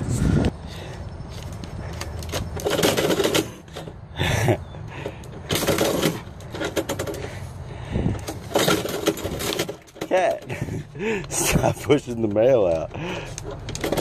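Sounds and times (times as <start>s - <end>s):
mail-slot flap clacking: 2.2s - 4.0s, 5.4s - 7.2s.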